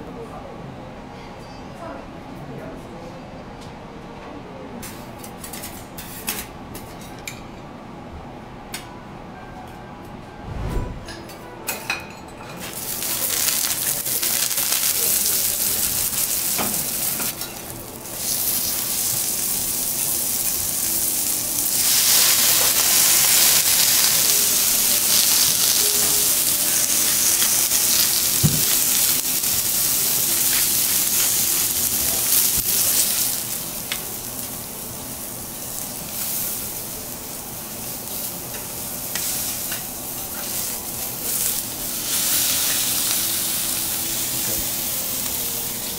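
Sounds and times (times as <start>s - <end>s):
lobster sizzling on a griddle: 12.6s - 45.9s.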